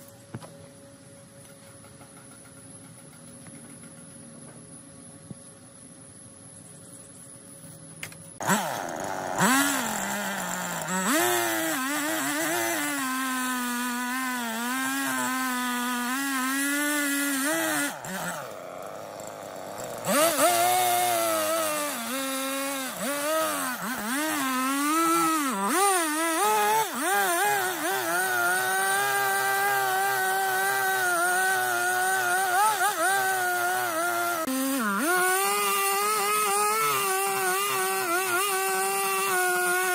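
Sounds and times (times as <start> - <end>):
chainsaw cutting log: 8.0 - 39.9.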